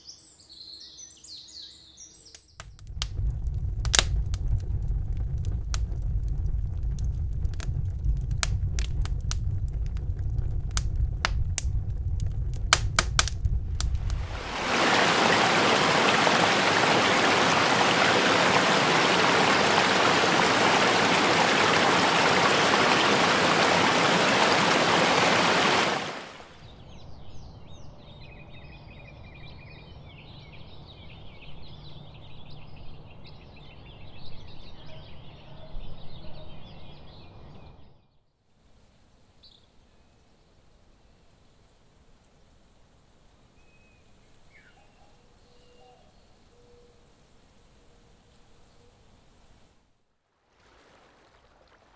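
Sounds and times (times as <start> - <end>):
wood fire crackling and popping: 2.6 - 14.7
rush of flowing water: 13.8 - 26.6, 50.4 - 51.9
birds chirping: 14.2 - 26.6.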